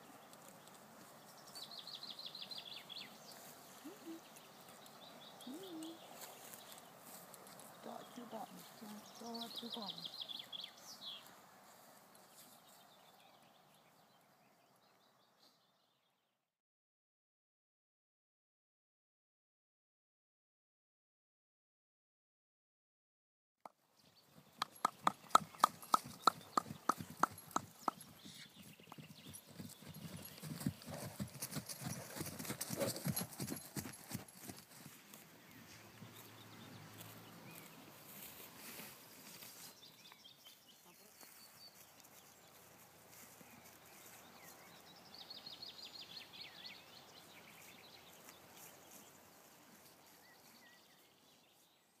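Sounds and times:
small birds singing: 0.0 - 16.2, 23.8 - 32.0, 35.0 - 52.0
horse hoofbeats on grass: 24.3 - 44.9.

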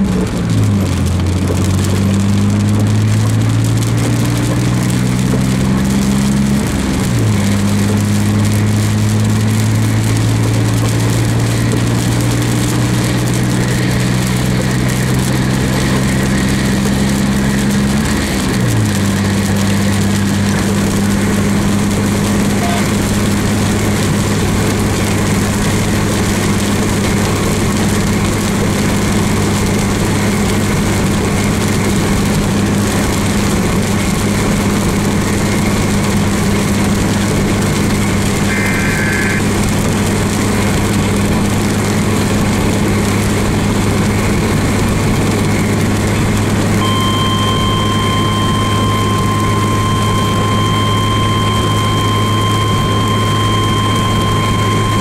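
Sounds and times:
car road and engine noise: 0.0 - 55.0
short electronic beep: 22.6 - 23.0, 38.5 - 39.4, 46.8 - 55.0
low hum: 46.8 - 55.0
steady high electronic tone: 46.8 - 55.0.

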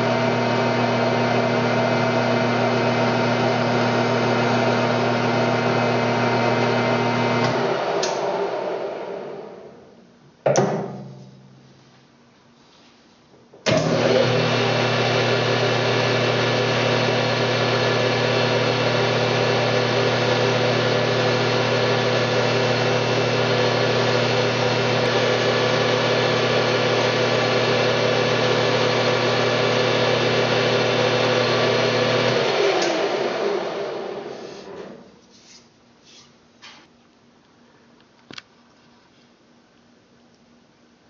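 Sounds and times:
lathe spinning down: 0.0 - 9.7, 13.7 - 35.0
metal lathe humming and whining: 13.7 - 35.0.

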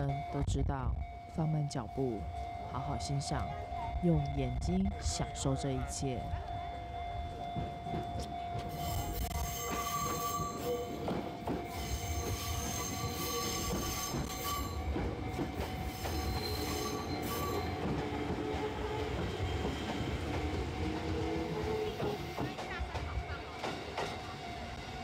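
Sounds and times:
train rumbling on rails: 0.0 - 25.0
wheels squealing: 8.7 - 14.9, 15.7 - 22.4.

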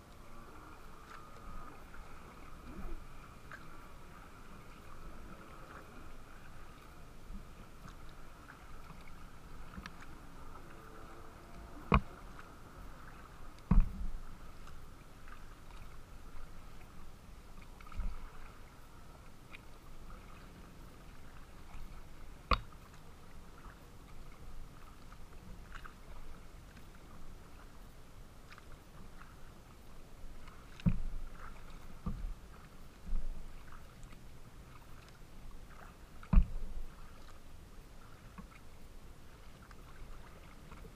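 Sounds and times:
waves lapping against hull: 0.0 - 40.9
knocks against boat: 11.8 - 12.1, 13.7 - 14.2, 36.2 - 36.7.

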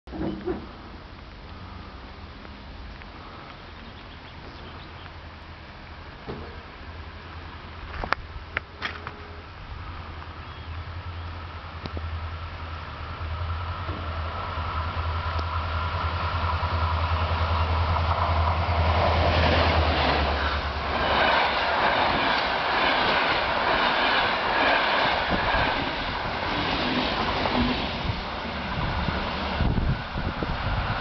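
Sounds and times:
diesel locomotive engine hum: 0.1 - 31.0
train wheels clickety-clack: 17.8 - 28.2.

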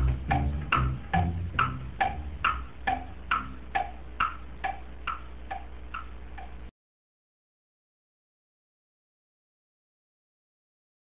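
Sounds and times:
drums and bass: 0.0 - 6.7
wood-block tick-tock rhythm: 0.0 - 6.7.

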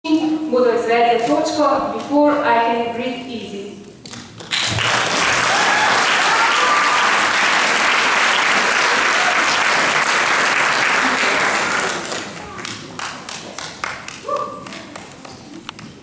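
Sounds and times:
audience applauding: 4.4 - 15.7.

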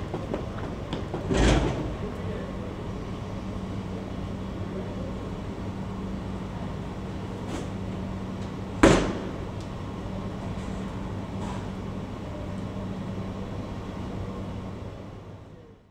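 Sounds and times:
air conditioning units humming: 0.0 - 15.9
loud bang: 8.8 - 9.5.

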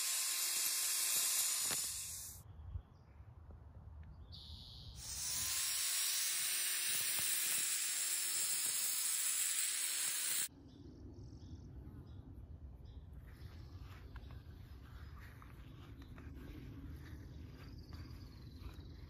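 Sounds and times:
angle grinder cutting concrete: 0.0 - 2.4, 5.0 - 10.5.

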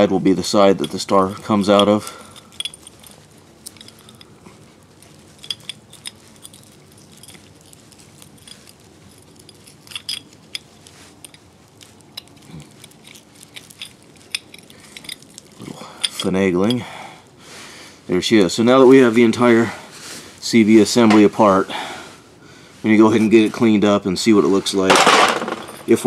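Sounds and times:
metal parts clicking and clinking: 0.0 - 17.0, 24.7 - 26.0.

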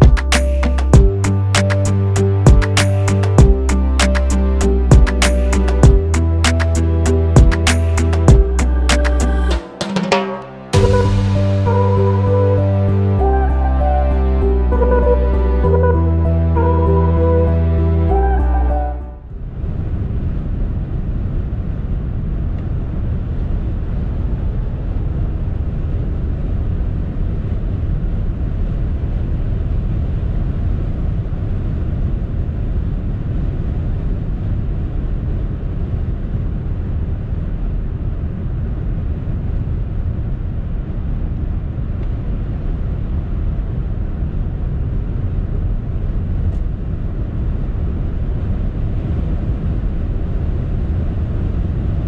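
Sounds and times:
tyre and wind rumble: 19.3 - 52.0.

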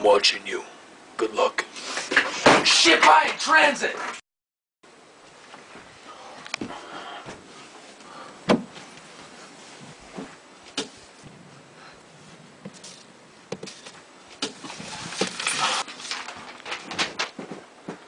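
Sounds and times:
rustling: 5.2 - 18.0
objects knocking and bumping: 12.6 - 18.0.

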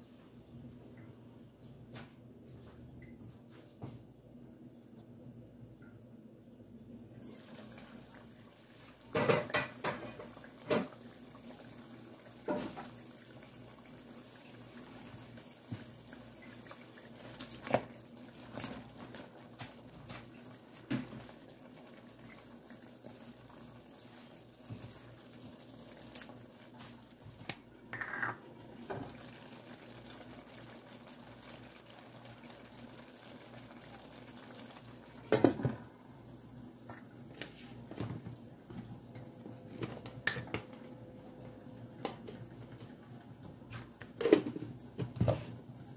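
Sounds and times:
stew bubbling: 7.2 - 40.4.

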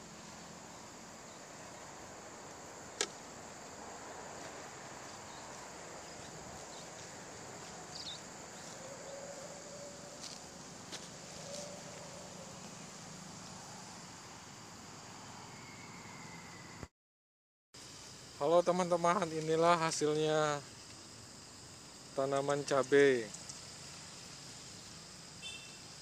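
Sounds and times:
insects chirring: 0.0 - 16.9, 17.8 - 26.0
sharp click: 3.0 - 3.2.

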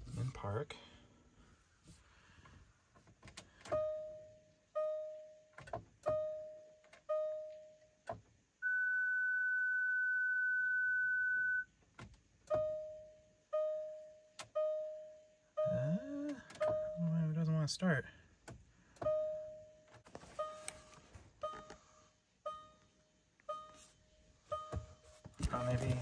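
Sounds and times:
steady higher beep: 8.6 - 11.6, 15.6 - 16.2
dashboard warning chime: 8.6 - 11.7, 12.5 - 17.6, 19.0 - 21.8, 22.4 - 23.9, 24.5 - 26.0.

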